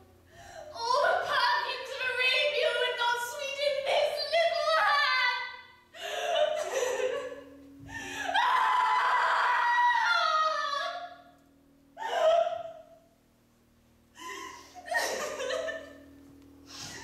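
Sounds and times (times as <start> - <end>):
woman crying out in sing-song: 12.0 - 13.0.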